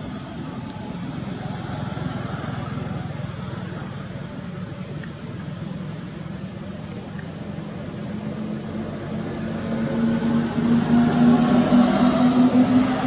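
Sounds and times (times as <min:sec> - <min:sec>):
motor engine droning: 0:00.0 - 0:13.0.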